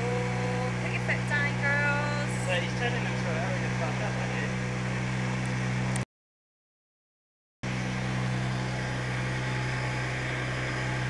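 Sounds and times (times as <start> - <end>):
speedboat engine running: 0.0 - 6.0, 7.6 - 11.0
wind: 7.7 - 11.0.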